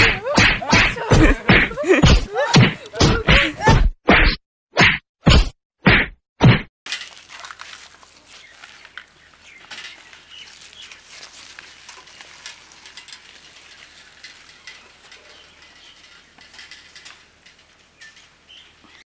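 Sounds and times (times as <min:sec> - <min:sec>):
faint open-air background: 0:06.9 - 0:19.0
small birds chirping: 0:07.8 - 0:19.0.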